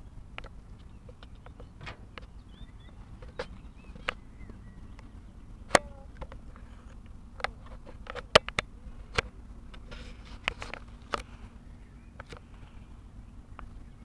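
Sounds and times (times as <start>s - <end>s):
boat engine hum: 0.0s - 14.0s.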